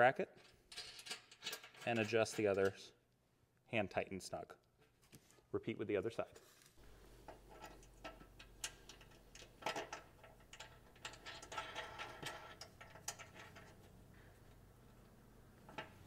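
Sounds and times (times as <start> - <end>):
faint metal clicks and ticks: 7.2 - 16.0
metal parts tapping: 7.3 - 13.8.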